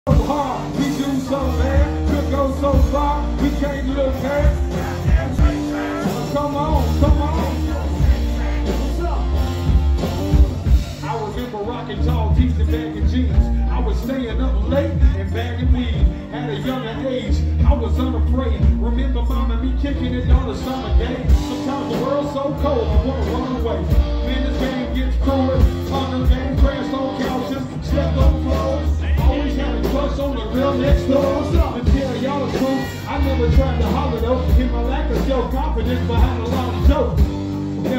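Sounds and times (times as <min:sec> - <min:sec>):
heavy bass: 0:00.0 - 0:37.9
live rock band playing: 0:00.0 - 0:37.9
man singing into microphone: 0:00.0 - 0:37.9
pounding drum beat: 0:00.1 - 0:11.2.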